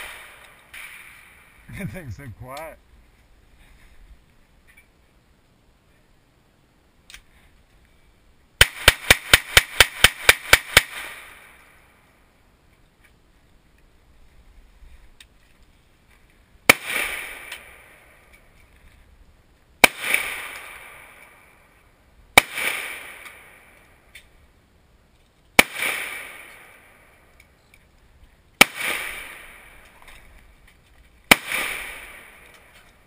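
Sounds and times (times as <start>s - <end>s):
rapid pistol shots: 8.6s - 11.6s, 16.7s - 18.0s, 19.8s - 21.2s, 22.4s - 23.6s, 25.6s - 26.8s, 28.6s - 29.8s, 31.3s - 32.5s
single gunshots with echo: 16.7s - 18.0s, 25.6s - 27.0s, 28.6s - 29.8s, 31.3s - 32.6s.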